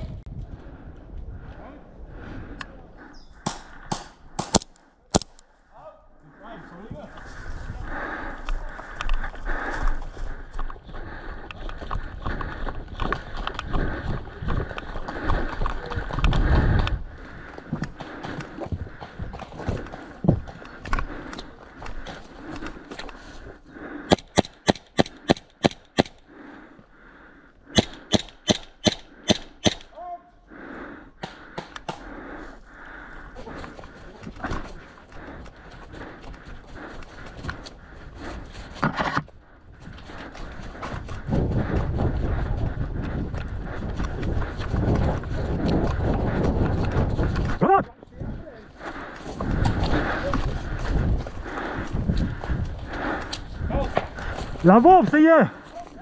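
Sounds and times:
airsoft rifle shots: 27.8s - 29.9s.

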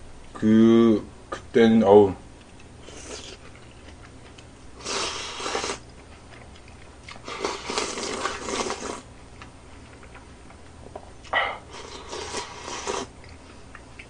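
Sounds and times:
person slurping noodles: 4.8s - 5.8s, 7.2s - 9.0s, 11.6s - 13.1s.

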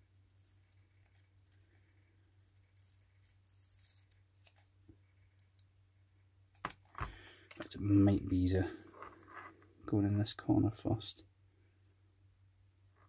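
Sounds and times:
faint scratching and rustling: 0.1s - 5.5s, 6.8s - 9.8s.

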